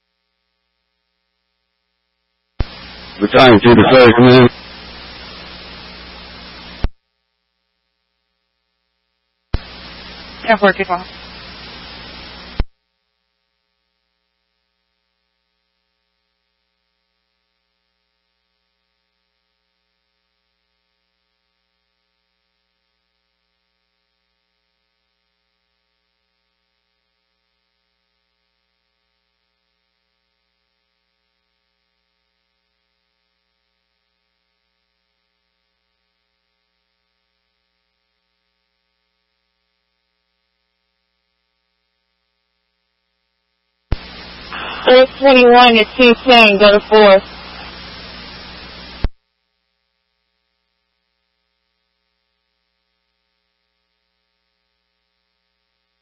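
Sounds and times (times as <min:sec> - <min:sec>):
faint electrical hum: 0:00.0 - 0:56.0.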